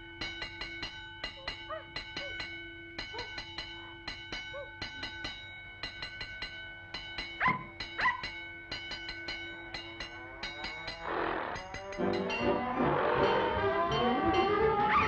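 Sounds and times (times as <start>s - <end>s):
puppy yipping: 7.4s - 8.3s
cartoon orchestral music: 10.2s - 15.0s.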